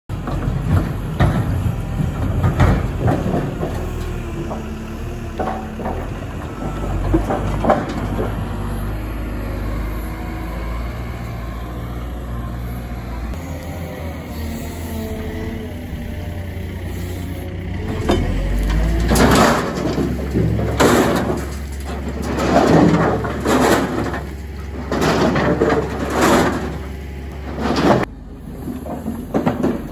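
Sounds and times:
firewood clattering in rotating bucket: 0.1 - 8.7, 17.8 - 29.9
diesel engine running: 0.1 - 29.9.

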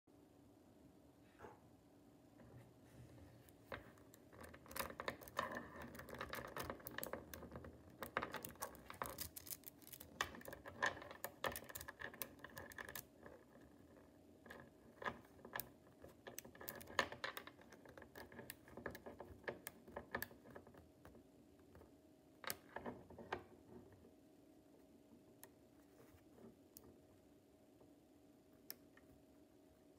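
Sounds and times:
magnetic balls clicking: 3.5 - 21.9.

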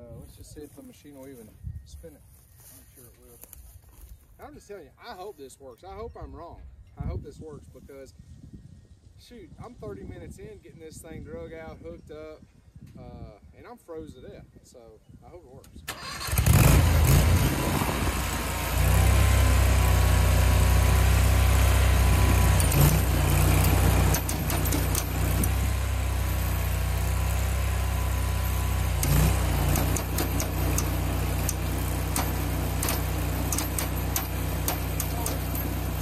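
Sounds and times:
small engine revving: 15.9 - 36.0.

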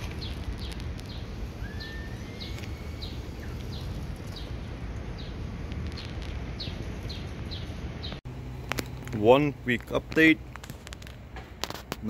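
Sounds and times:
small bird chirping: 0.0 - 8.2
low outdoor rumble: 0.0 - 12.0.

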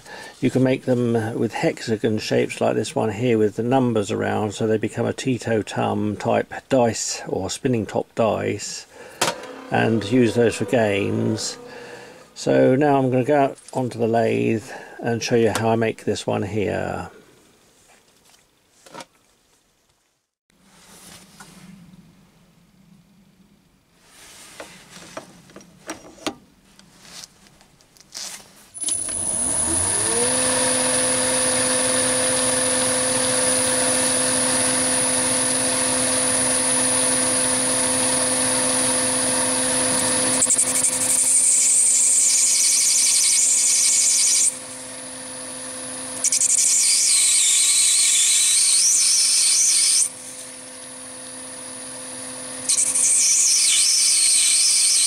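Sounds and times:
lathe motor whine: 8.9 - 13.4, 28.8 - 55.0
lathe tool cutting brass: 9.0 - 13.1, 28.8 - 55.0.

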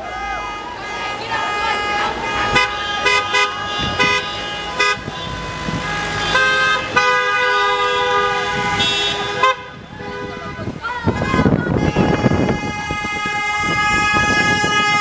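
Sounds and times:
car horns long blasts: 0.0 - 15.0
car horns short beeps: 0.5 - 9.6.

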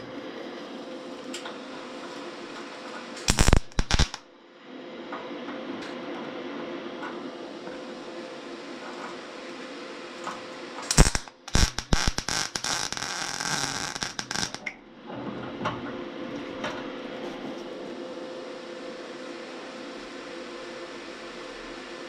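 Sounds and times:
steady hum: 0.0 - 15.1
welding arc crackling: 3.2 - 4.2, 10.8 - 14.7
welding arc pops: 3.2 - 4.2, 10.8 - 14.7.

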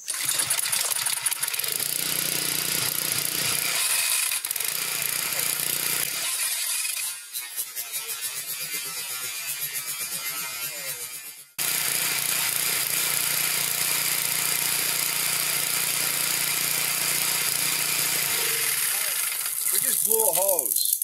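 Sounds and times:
pressure washer engine running: 0.0 - 6.7, 11.6 - 20.6.

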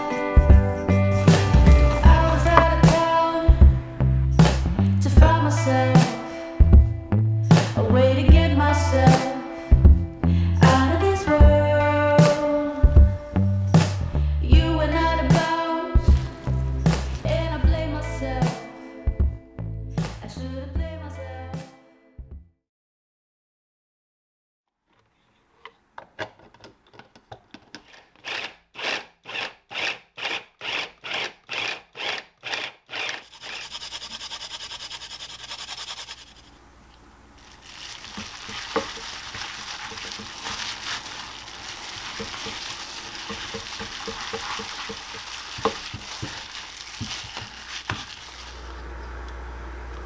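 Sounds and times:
food chopper mincing: 28.2 - 36.4
hand kneading wet mixture: 37.4 - 48.8.

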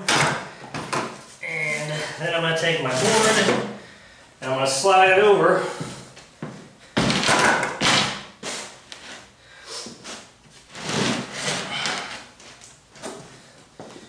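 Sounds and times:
plywood board scraping plywood: 10.7 - 12.1.

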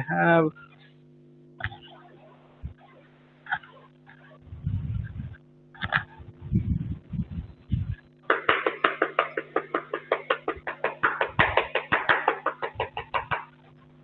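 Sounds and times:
low hum: 0.0 - 14.0
chalk tapping and scraping: 8.3 - 13.6.

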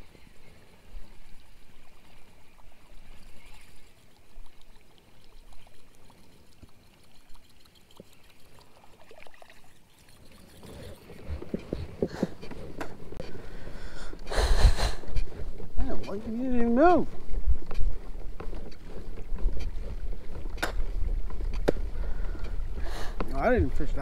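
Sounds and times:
water lapping around kayak: 0.0 - 24.0
wind rumble on microphone: 10.7 - 24.0.

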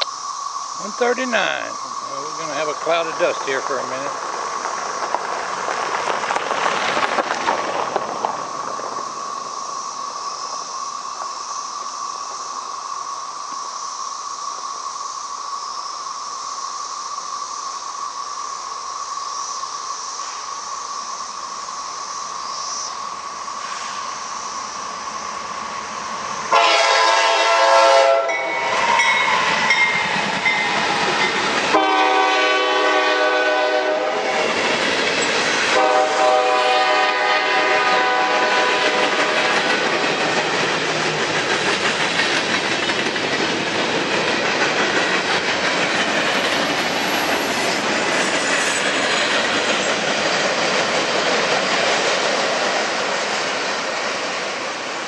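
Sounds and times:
freight cars rolling on rails: 0.8 - 13.6, 21.2 - 55.0
locomotive air horn blasts: 26.5 - 28.5, 31.7 - 34.5, 35.7 - 39.5.

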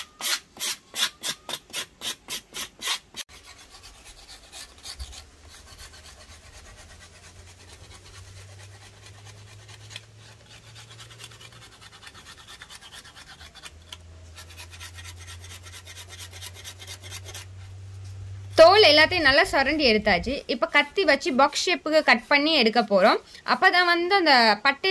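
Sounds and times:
blade scraping bark: 0.0 - 17.8.

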